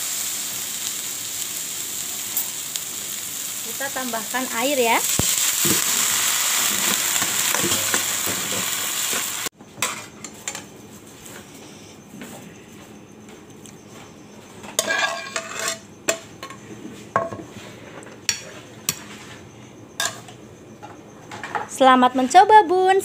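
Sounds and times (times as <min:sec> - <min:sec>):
water hissing in hot pan: 0:00.0 - 0:09.5
okra sizzling in a frying pan: 0:00.0 - 0:10.0
metal spatula stirring: 0:14.8 - 0:15.8.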